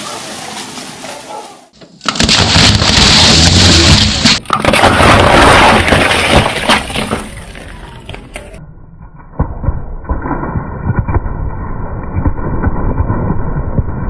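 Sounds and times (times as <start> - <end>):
cans crushed under tyre: 2.0 - 8.6.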